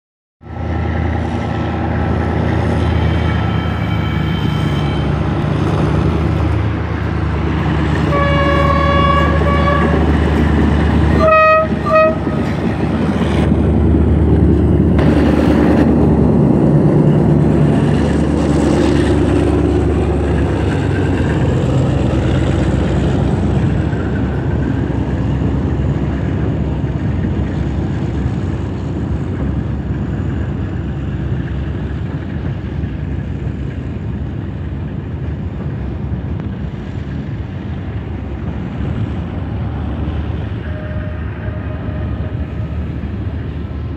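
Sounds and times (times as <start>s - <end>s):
diesel locomotive engines: 0.4s - 43.9s
train horn blasts: 8.0s - 10.2s, 11.1s - 12.6s, 40.6s - 43.0s.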